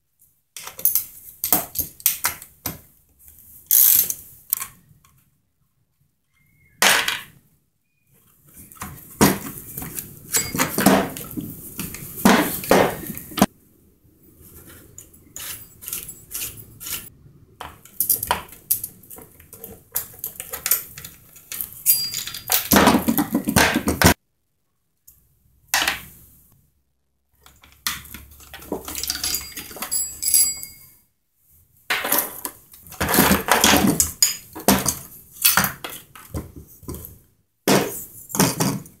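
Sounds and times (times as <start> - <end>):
plastic and metal parts clinking: 8.7 - 13.5, 15.0 - 24.0, 27.4 - 30.9.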